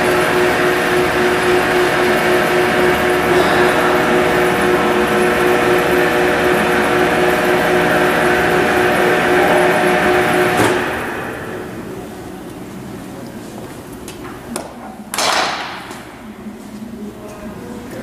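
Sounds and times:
motor and gearbox whine: 0:00.0 - 0:11.9
faint hum: 0:00.0 - 0:15.1.

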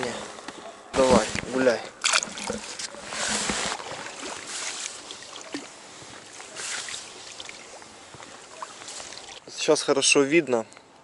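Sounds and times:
quiet water lapping: 0:00.1 - 0:09.6
soft water swishes: 0:01.2 - 0:09.6.

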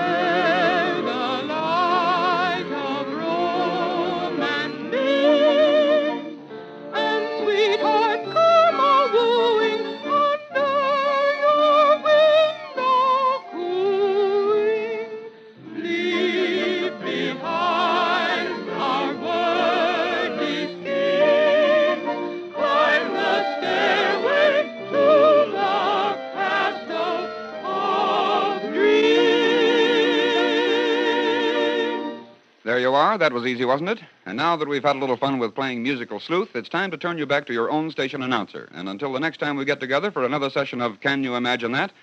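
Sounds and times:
operatic singing with vibrato: 0:00.0 - 0:34.9.

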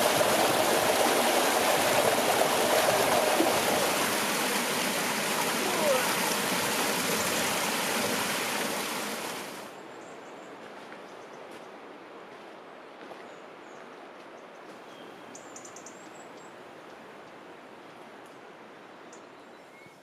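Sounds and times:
rushing stream: 0:00.0 - 0:09.8.

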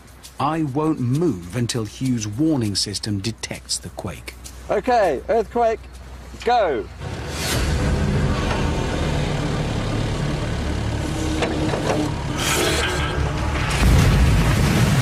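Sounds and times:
digger engine running: 0:06.9 - 0:15.0
deep loud splash: 0:13.7 - 0:15.0.

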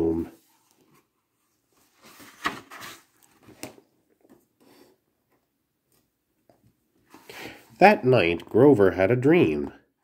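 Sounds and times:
paper page turning: 0:01.7 - 0:03.8.

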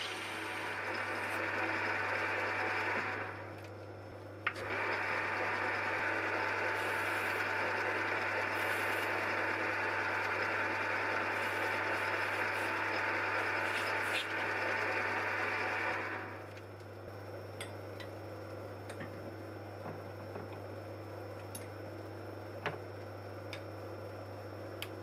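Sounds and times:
lathe cutting metal: 0:04.8 - 0:16.4.

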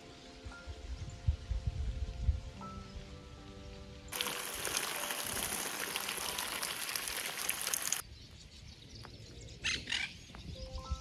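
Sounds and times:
spraying water hiss: 0:04.1 - 0:08.0.

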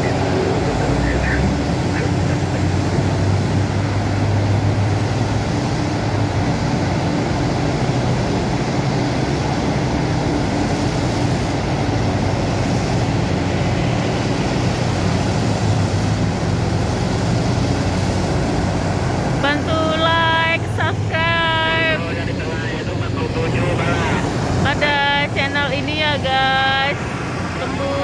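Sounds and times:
heavy machinery engines droning: 0:00.0 - 0:28.0.

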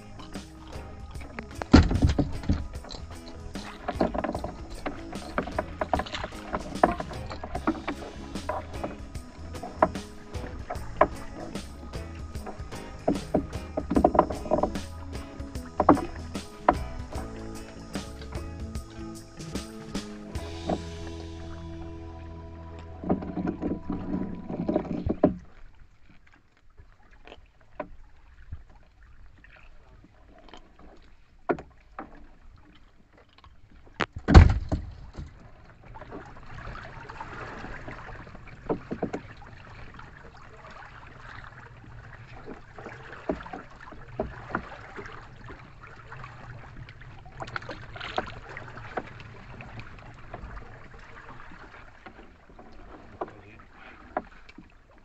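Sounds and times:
wind noise: 0:00.0 - 0:12.7
water washing: 0:00.0 - 0:26.4, 0:34.4 - 0:55.0
net knocking against boat hull: 0:00.2 - 0:03.0, 0:03.6 - 0:17.4.

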